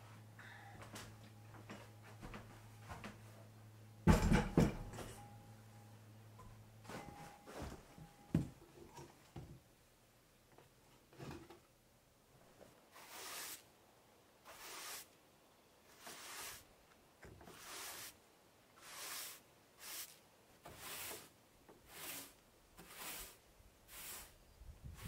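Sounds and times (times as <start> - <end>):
hand rubbing across wood: 12.9 - 13.6, 14.5 - 15.1, 15.9 - 16.7, 17.4 - 18.2, 18.8 - 25.0.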